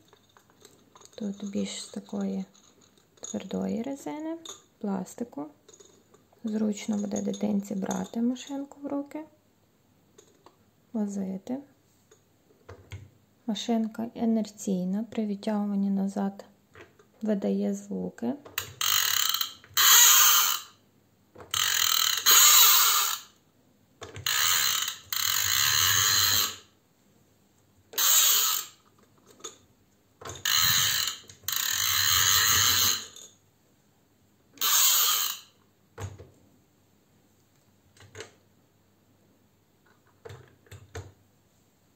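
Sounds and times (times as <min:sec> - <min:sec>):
toy car friction motor whirring: 0:18.6 - 0:20.8, 0:21.5 - 0:23.4, 0:24.2 - 0:26.7, 0:27.9 - 0:28.8, 0:30.3 - 0:33.2, 0:34.6 - 0:35.6.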